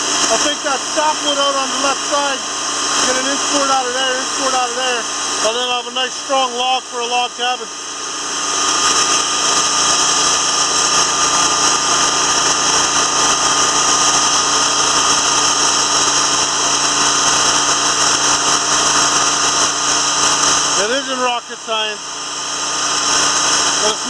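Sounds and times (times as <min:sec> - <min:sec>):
band sawmill cutting log: 0:00.0 - 0:24.0.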